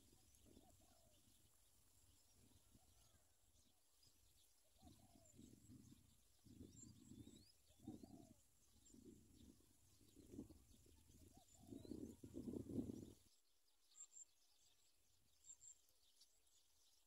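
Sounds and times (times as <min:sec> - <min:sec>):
dove low-pitched bursts: 0:00.0 - 0:13.3
small birds chirping: 0:00.0 - 0:17.0.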